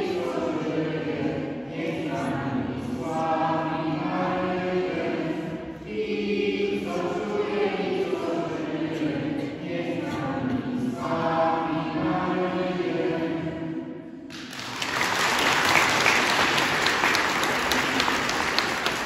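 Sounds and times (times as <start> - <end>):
boys singing a hymn: 0.0 - 14.2
audience applauding: 14.3 - 19.0.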